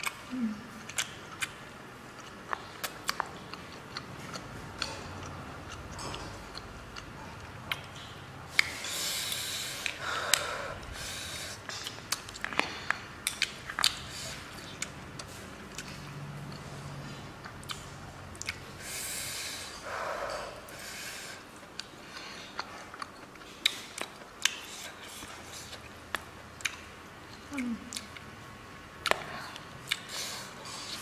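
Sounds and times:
wet chewing smacks: 0.8 - 10.5, 29.0 - 31.0.

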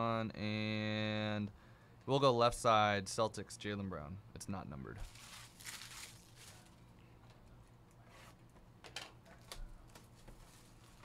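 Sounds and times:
low steady hum: 0.0 - 11.0
plastic wrap crinkling: 5.0 - 6.8.

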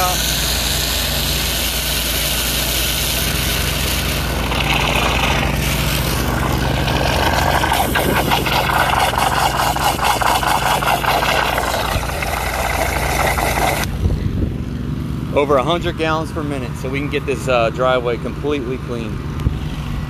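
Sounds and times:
water rushing: 0.0 - 13.9
pressure washer engine running: 0.0 - 14.0
fast pulsing: 2.6 - 13.9.

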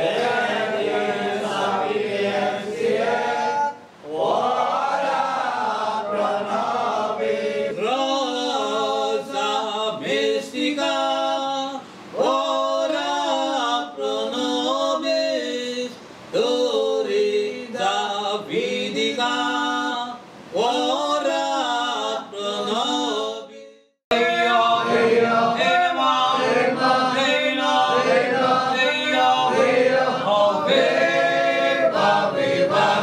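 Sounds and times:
group singing a hymn: 0.0 - 33.0.

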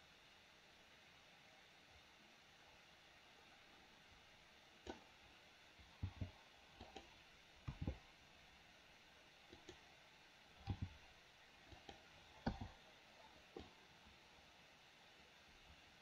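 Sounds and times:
computer mouse and keyboard clicks: 6.0 - 8.0, 9.5 - 9.8, 10.6 - 11.0, 11.7 - 12.8.

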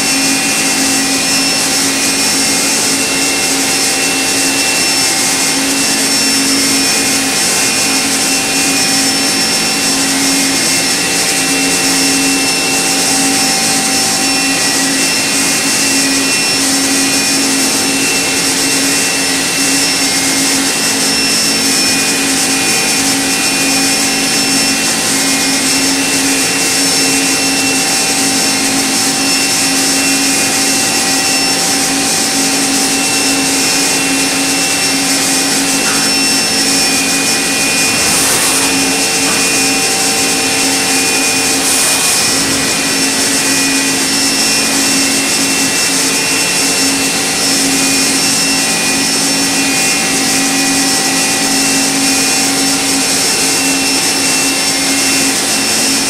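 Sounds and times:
machine spindle hum: 0.0 - 55.8
tool cutting metal hiss: 33.4 - 45.6.

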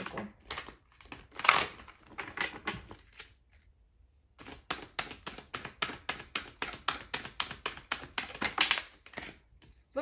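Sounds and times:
cards being shuffled: 0.0 - 9.9.

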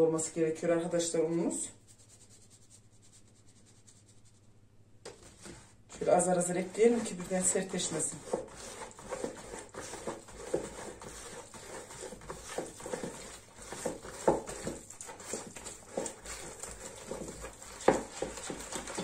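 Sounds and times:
hand squishing wet dough: 5.3 - 19.0.

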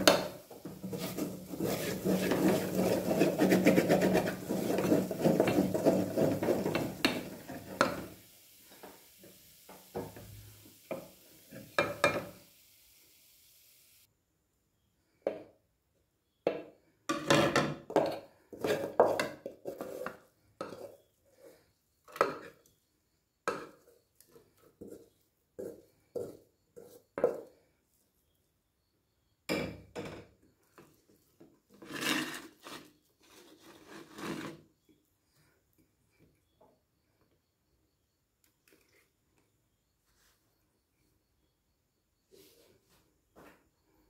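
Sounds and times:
spatula scraping aluminium pot: 0.0 - 8.2, 18.5 - 22.6, 31.7 - 34.6.

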